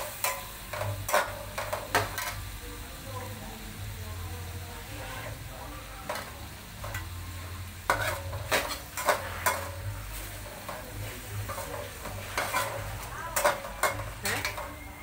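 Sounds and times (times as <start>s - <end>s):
metal utensil scraping cookware: 0.1s - 2.4s, 7.8s - 15.0s.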